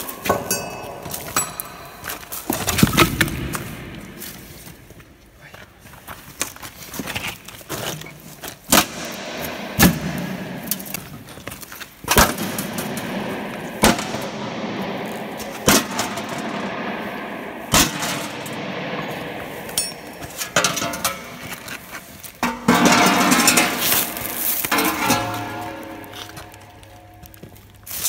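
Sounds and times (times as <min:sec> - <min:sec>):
sharp metal clanks: 0:00.0 - 0:03.7, 0:12.1 - 0:28.0
steady noisy background: 0:06.0 - 0:28.0.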